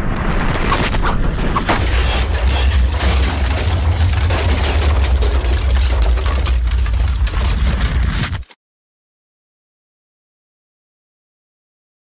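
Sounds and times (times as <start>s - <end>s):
volcanic eruption rumble: 0.0s - 2.4s.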